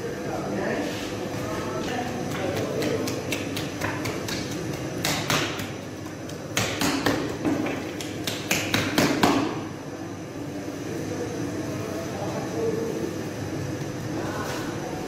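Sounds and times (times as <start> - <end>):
steady background hum: 0.0 - 15.0
hands patting dough: 1.8 - 9.6.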